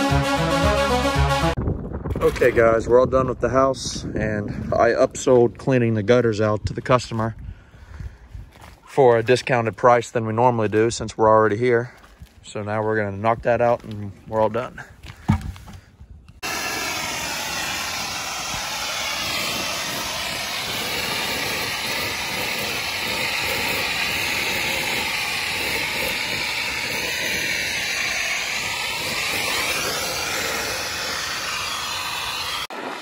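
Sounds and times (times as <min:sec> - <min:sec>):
pressure washer spray hissing: 0:16.4 - 0:33.0.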